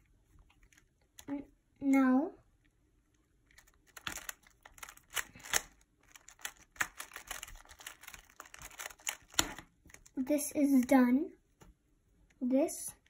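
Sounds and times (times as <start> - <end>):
puzzle cube clicking: 3.5 - 9.6.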